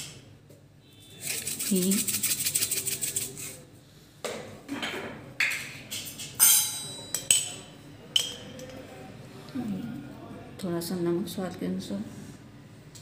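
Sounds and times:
metal spoon clinking on steel: 6.4 - 8.8.

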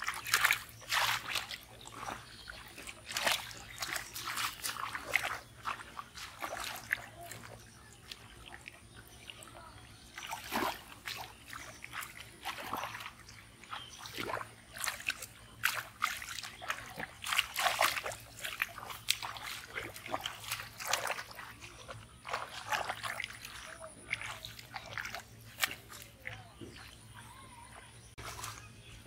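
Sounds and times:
hands splashing in muddy water: 0.0 - 27.4, 28.0 - 28.8.

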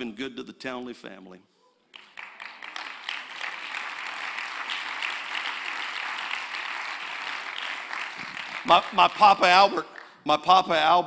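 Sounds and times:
congregation applauding: 1.9 - 10.2.

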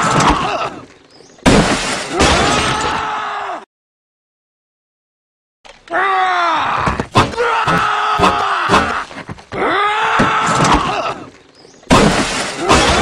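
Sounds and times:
man screaming: 5.9 - 11.2.

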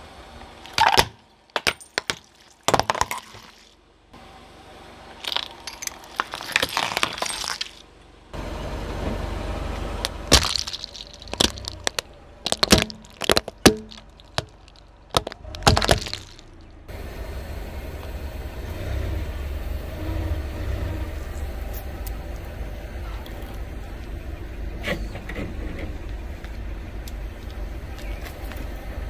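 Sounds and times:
objects crunching under a tyre: 0.6 - 3.8, 5.1 - 8.0, 9.7 - 16.9
low rumble: 7.8 - 29.0.

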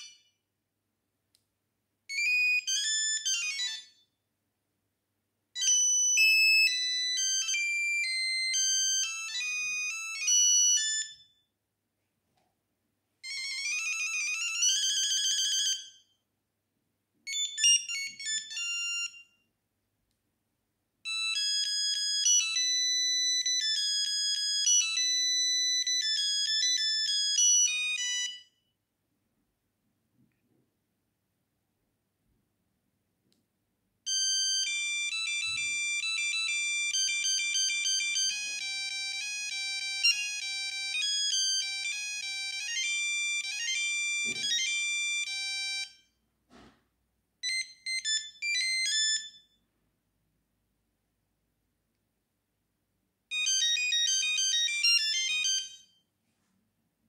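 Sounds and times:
mobile phone ringtones: 2.1 - 4.0, 5.6 - 11.3, 13.2 - 16.1, 17.3 - 19.4, 21.1 - 28.6, 34.1 - 46.0, 47.4 - 49.5, 53.3 - 56.0.

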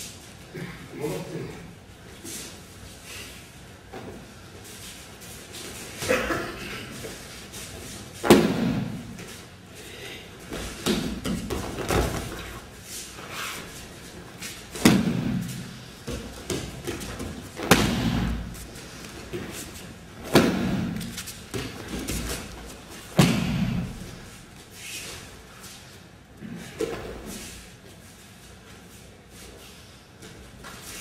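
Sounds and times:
bodies slapping onto mats: 8.1 - 9.4, 10.4 - 12.7, 14.4 - 24.3.

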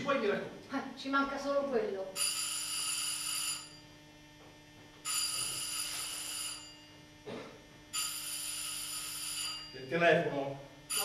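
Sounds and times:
telephone ringing: 2.1 - 3.9, 5.0 - 6.9, 7.9 - 9.8.

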